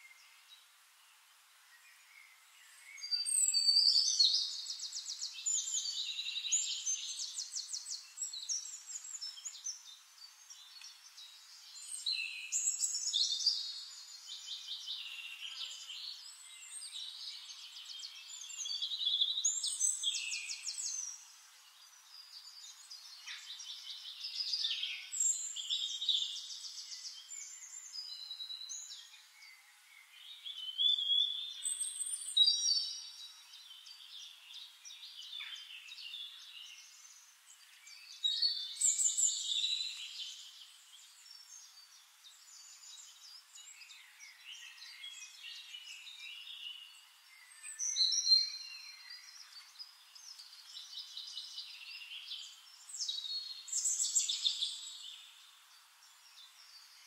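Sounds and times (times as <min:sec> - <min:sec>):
songbirds chirping and trilling: 0:00.0 - 0:57.0.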